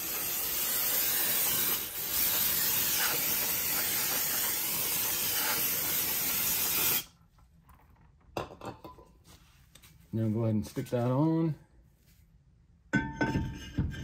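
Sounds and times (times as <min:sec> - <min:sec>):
aerosol spray hissing: 0:00.0 - 0:07.1.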